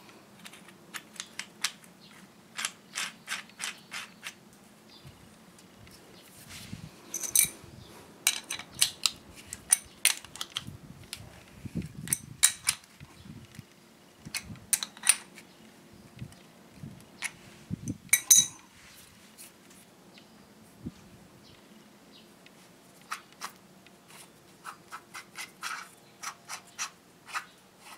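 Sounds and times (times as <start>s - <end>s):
metallic hardware clinks: 7.1s - 7.6s, 8.3s - 9.0s, 17.9s - 18.6s.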